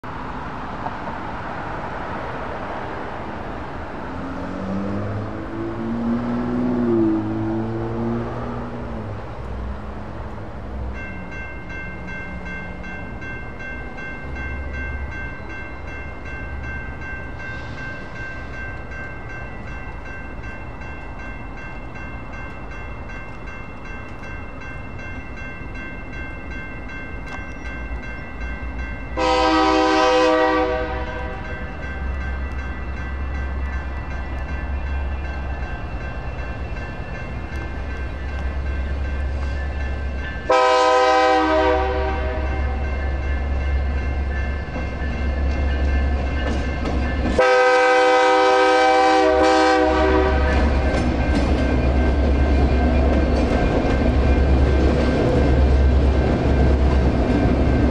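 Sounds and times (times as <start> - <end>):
railroad crossing bell ringing: 4.0 - 57.9
locomotive air horn: 29.2 - 31.5, 40.5 - 42.6, 47.4 - 50.6.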